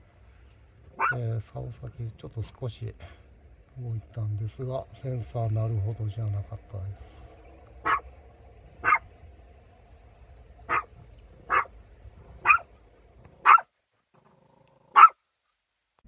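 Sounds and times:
small dog barking: 0.9s - 1.2s, 7.8s - 8.1s, 8.8s - 9.1s, 10.7s - 11.7s, 12.4s - 12.7s, 13.4s - 13.7s, 14.9s - 15.2s.

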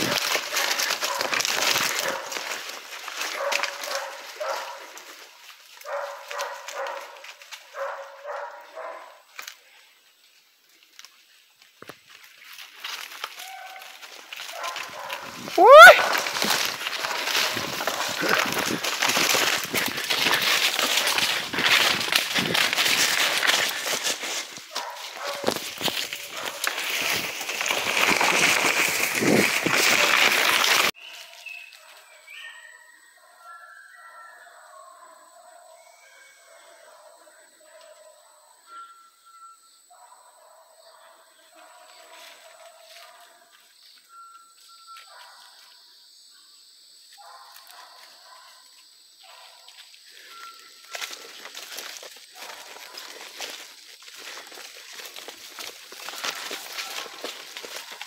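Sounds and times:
snaps and rustles: 0.0s - 5.2s, 10.9s - 31.0s
leaves and branches brushing microphone: 0.0s - 7.9s, 12.1s - 31.8s, 50.2s - 58.0s
dogs barking: 0.0s - 9.3s, 13.4s - 24.0s, 24.6s - 26.8s, 31.8s - 38.6s, 39.9s - 43.5s, 47.2s - 51.4s, 52.3s - 53.6s
faint whistling calls: 38.6s - 39.9s, 44.0s - 45.2s, 50.0s - 51.4s.

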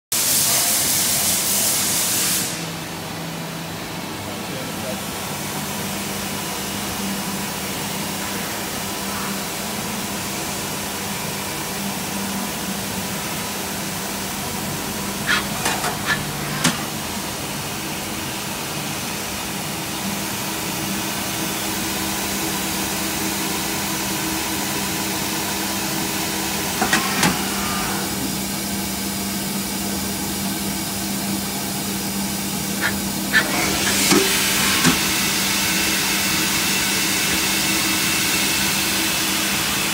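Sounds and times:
lathe machine hum: 12.7s - 39.9s.

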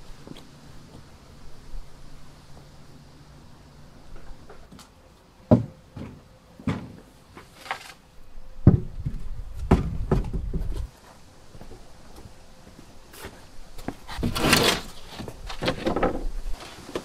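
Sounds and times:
plywood scraping: 6.0s - 8.0s, 13.8s - 17.0s.

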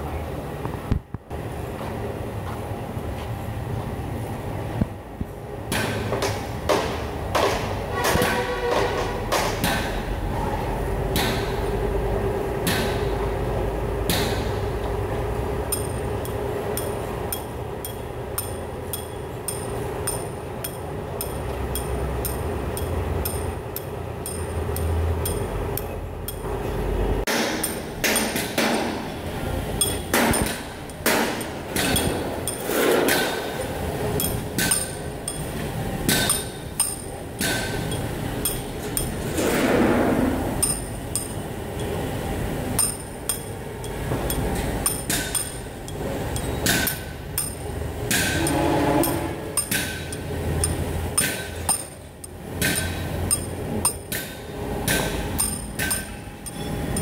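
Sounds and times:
steady low hum: 0.0s - 57.0s
metallic clinks: 15.7s - 26.5s, 29.8s - 32.7s, 33.6s - 39.2s, 40.6s - 42.0s, 42.8s - 54.2s, 54.9s - 57.0s.

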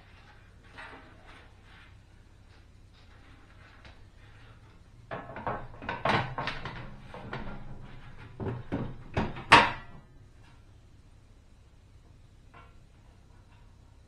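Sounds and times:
metal stove panel clattering: 5.1s - 10.1s.

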